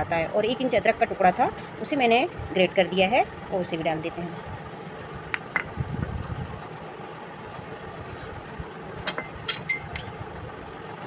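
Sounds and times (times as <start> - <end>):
low background hum: 0.0 - 11.0
metallic clink: 9.2 - 10.2.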